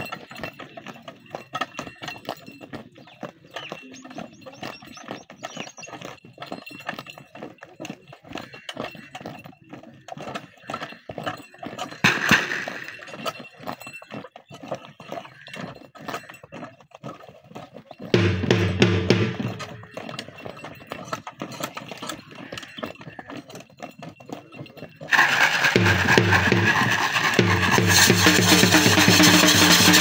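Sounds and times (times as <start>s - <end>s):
hooves drumming on earth: 0.0s - 30.0s.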